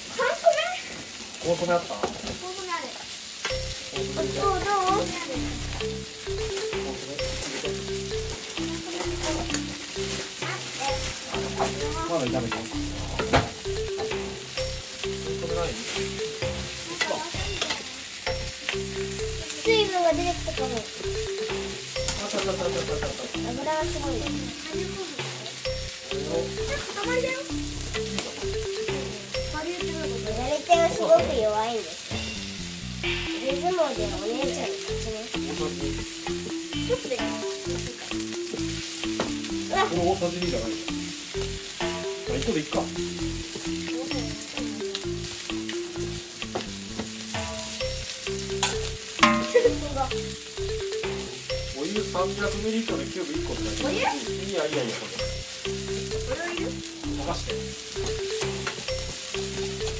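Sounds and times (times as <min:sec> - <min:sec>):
vegetables sizzling in a frying pan: 0:00.0 - 0:59.9.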